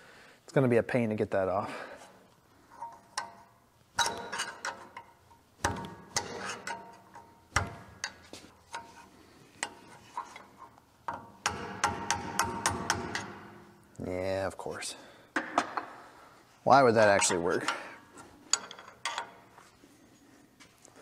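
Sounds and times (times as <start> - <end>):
hand tools clinking on metal: 4.0 - 5.2, 17.0 - 19.5.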